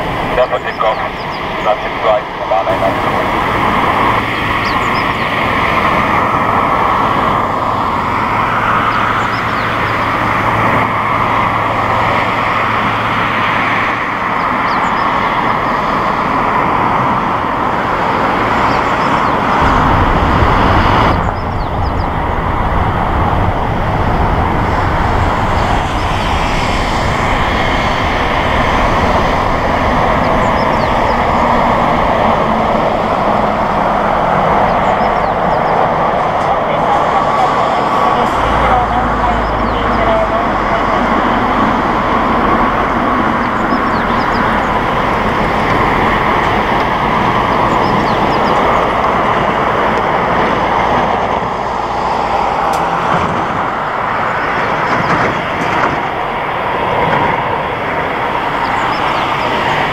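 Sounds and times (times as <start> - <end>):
jet engines running: 0.0 - 59.9
deep rumble: 18.4 - 54.4.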